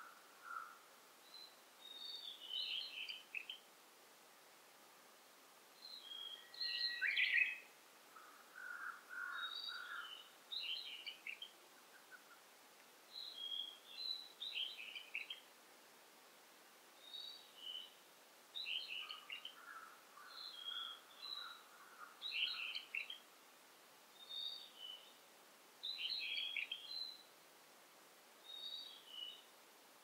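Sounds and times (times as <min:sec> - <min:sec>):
songbirds singing: 0:00.0 - 0:03.7, 0:05.7 - 0:15.5, 0:17.0 - 0:23.4, 0:24.1 - 0:27.4, 0:28.4 - 0:29.6.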